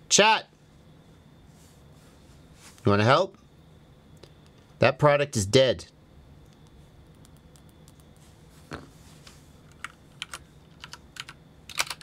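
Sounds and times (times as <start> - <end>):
typing on computer keyboard: 9.7 - 12.0.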